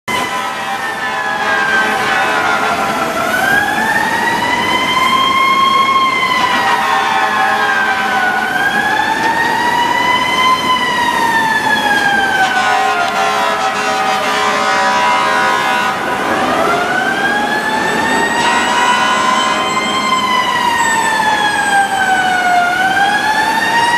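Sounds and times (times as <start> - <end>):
mechanical siren wailing: 0.1 - 23.9.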